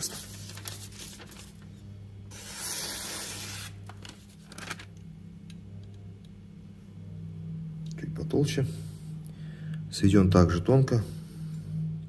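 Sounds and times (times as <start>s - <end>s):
low steady hum: 0.0s - 12.0s
knife slicing through paper: 2.3s - 3.8s.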